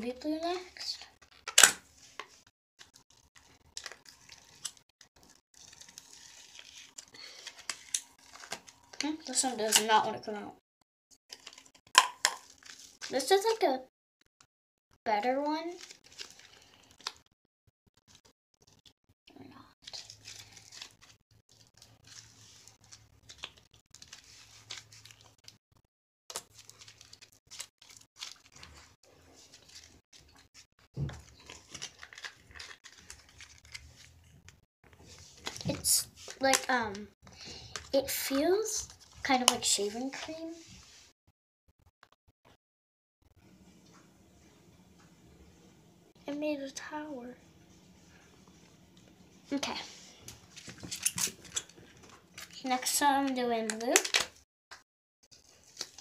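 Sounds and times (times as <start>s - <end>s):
plastic packet crinkling and clicking: 0.8s - 9.9s, 11.3s - 13.1s, 15.8s - 17.3s, 19.8s - 25.6s, 26.3s - 39.6s, 50.5s - 54.4s, 55.3s - 56.0s.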